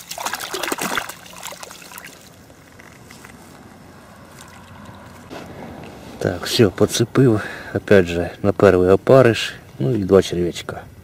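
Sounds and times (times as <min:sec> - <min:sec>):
water dripping: 0:00.0 - 0:02.6.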